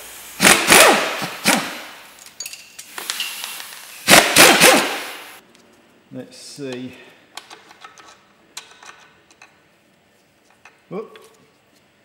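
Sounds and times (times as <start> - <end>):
impact wrench bursts: 0.3 - 2.0, 3.1 - 5.4.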